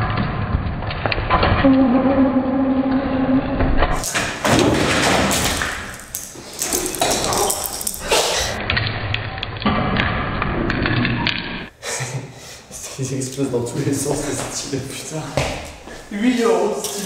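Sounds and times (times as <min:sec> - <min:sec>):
people crawling on tiled floor: 0:03.9 - 0:08.6
pencils knocking and clicking: 0:04.0 - 0:08.3.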